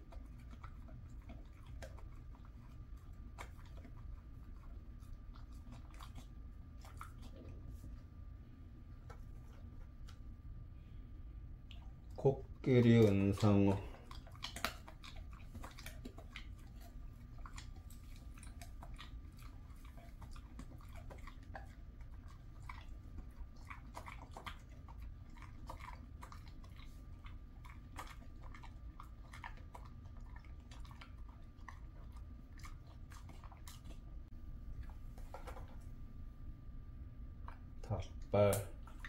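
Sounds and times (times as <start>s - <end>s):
dog chewing hard treat: 0.0s - 8.0s, 11.7s - 35.9s.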